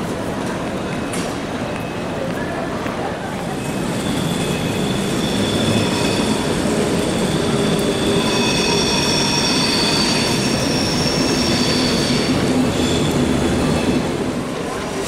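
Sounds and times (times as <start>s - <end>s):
low train rumble: 0.0s - 15.0s
train wheels squealing: 3.4s - 15.0s.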